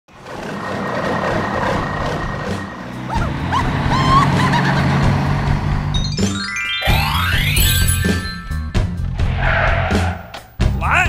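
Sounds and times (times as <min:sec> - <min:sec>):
heavy truck engine running: 0:00.1 - 0:06.3.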